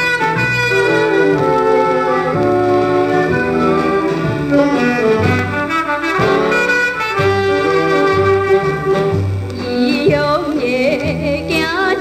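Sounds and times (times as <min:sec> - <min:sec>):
horn melody: 0:00.0 - 0:10.0
person singing: 0:09.5 - 0:12.0.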